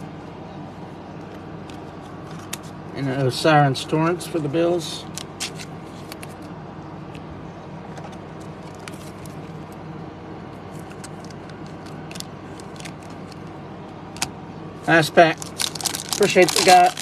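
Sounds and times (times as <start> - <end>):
low background hum: 0.0 - 17.0
clicks of cards being handled: 1.2 - 2.7.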